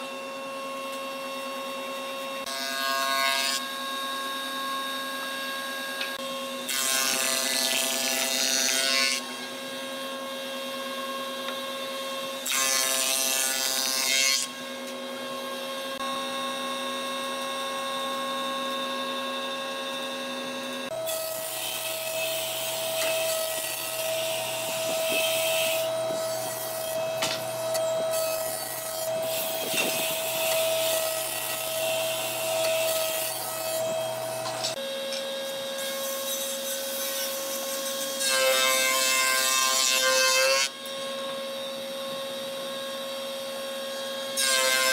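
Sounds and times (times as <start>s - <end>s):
jointer planing wood: 0.6s - 44.9s
belt sander running: 14.6s - 35.1s.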